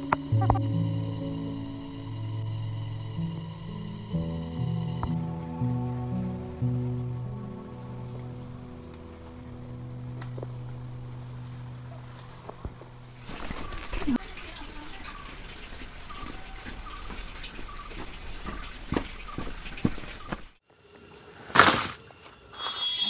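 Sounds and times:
soft background music: 0.0 - 14.2
insect chirring: 0.0 - 20.6, 22.5 - 23.0
bird calling: 10.9 - 20.6, 22.6 - 23.0
footsteps on muddy path: 12.0 - 14.2, 14.8 - 22.5.

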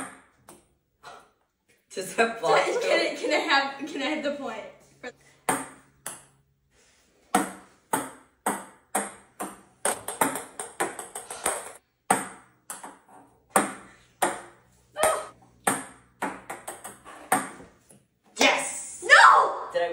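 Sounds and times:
ping pong balls bouncing on wood: 5.4 - 6.4, 7.3 - 18.0.

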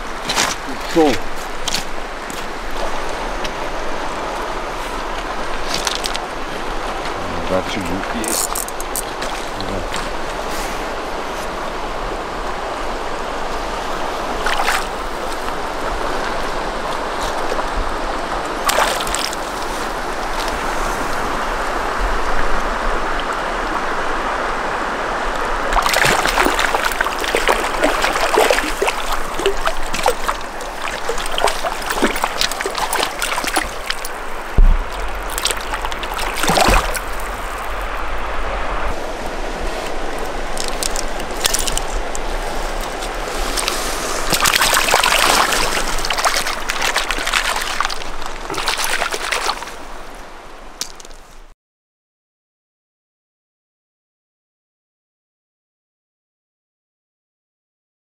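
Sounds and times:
fish splashing in shallows: 0.0 - 11.8, 13.3 - 17.8, 18.4 - 21.5, 25.6 - 38.2, 38.9 - 50.2
river flowing over pebbles: 0.0 - 51.5.

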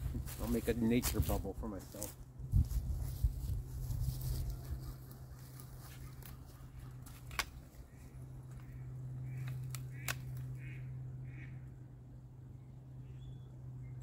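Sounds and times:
loppers snipping branches: 7.0 - 7.8, 9.3 - 10.6
ducks quacking: 7.9 - 11.6.

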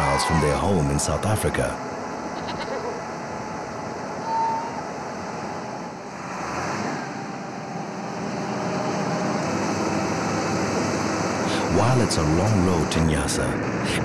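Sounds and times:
outdoor noise: 0.0 - 14.0
engine running: 4.8 - 14.0.

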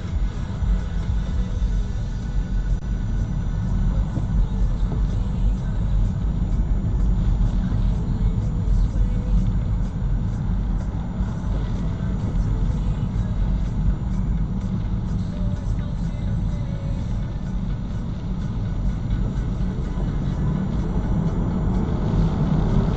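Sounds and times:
car road and engine rumble: 0.0 - 22.9.

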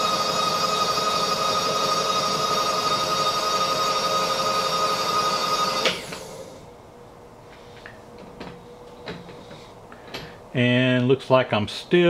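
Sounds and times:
power feed motor whining: 0.0 - 6.7
motor stopping click: 4.8 - 6.5.

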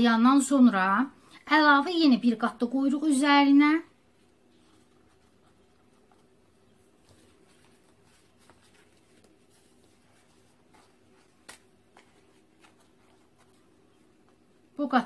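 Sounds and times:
dry flatbread crinkling: 4.0 - 14.8.

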